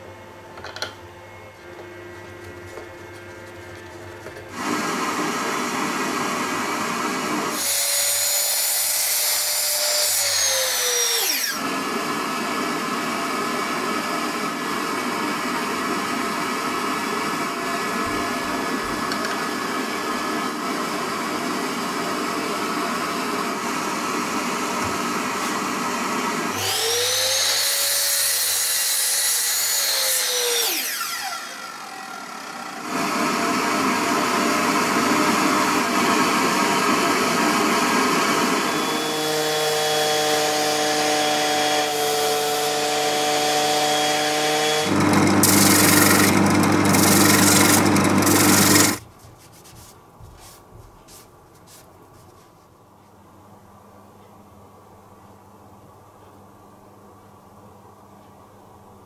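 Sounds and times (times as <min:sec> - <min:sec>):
miter saw cutting: 0:04.5 - 0:14.7, 0:24.4 - 0:49.0.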